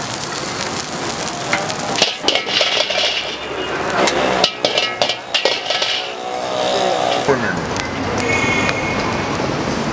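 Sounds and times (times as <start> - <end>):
metal spatula scraping wok: 2.0 - 7.3.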